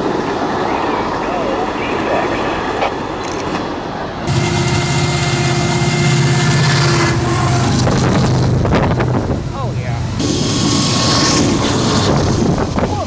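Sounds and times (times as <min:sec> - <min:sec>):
diesel locomotive engine drone: 0:00.0 - 0:13.0
rail noise: 0:00.0 - 0:13.0.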